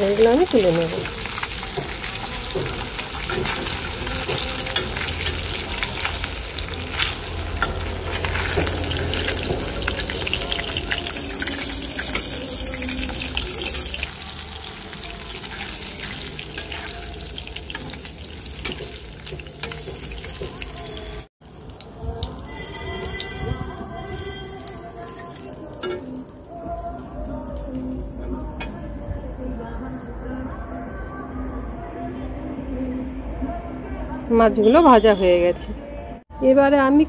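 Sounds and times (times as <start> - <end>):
fish sizzling in hot oil: 0.0 - 28.8.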